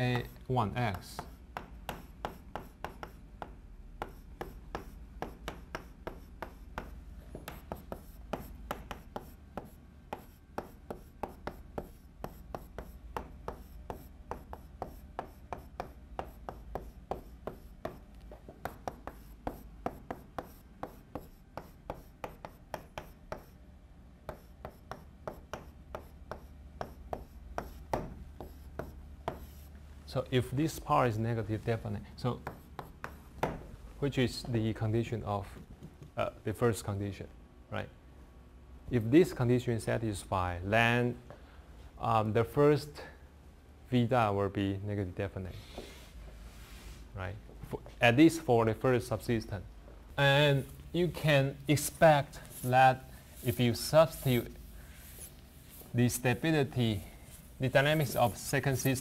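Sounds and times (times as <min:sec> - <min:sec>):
chalk tapping and scraping on blackboard: 0:00.1 - 0:23.6, 0:24.2 - 0:29.8, 0:32.3 - 0:33.6, 0:35.5 - 0:36.2, 0:45.7 - 0:46.0, 0:51.8 - 0:59.0.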